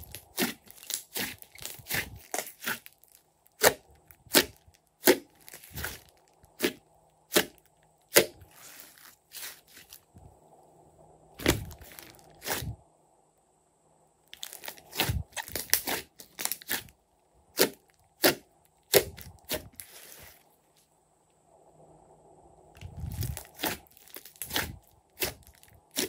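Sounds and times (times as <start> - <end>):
slime popping and crackling: 0.0 - 10.0, 14.4 - 16.9, 17.6 - 19.9, 23.1 - 26.0.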